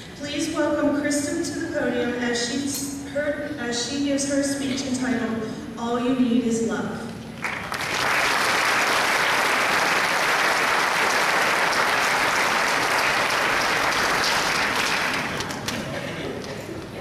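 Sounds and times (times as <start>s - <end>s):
large audience applauding: 7.4s - 15.8s.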